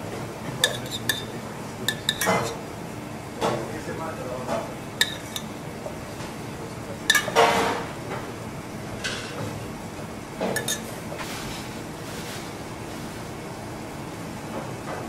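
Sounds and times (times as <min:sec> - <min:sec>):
metal spoon clinking on saucepan: 0:00.6 - 0:01.3, 0:01.9 - 0:02.6, 0:05.0 - 0:05.6, 0:07.1 - 0:07.4, 0:10.6 - 0:10.9.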